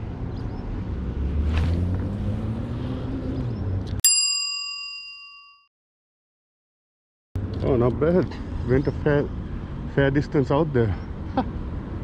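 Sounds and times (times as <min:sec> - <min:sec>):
bell-like ding: 0:04.1 - 0:05.7.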